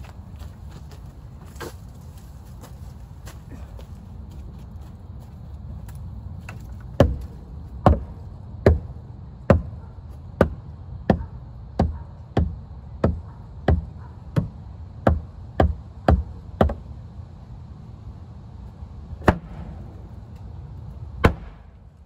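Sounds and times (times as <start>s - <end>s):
tool striking wood: 6.5s - 8.9s, 11.8s - 16.8s, 19.2s - 19.7s.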